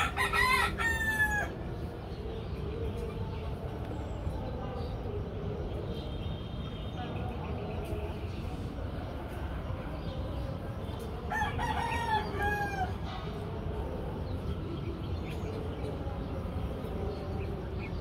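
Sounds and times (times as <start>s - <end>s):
rooster crowing: 0.0s - 1.6s, 11.3s - 13.0s
low background noise: 0.0s - 18.0s.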